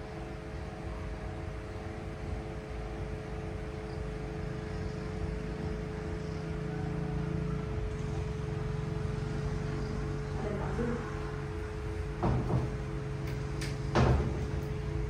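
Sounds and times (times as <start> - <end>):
steady low hum: 0.0 - 15.0
wooden ladder knocking: 12.2 - 12.8.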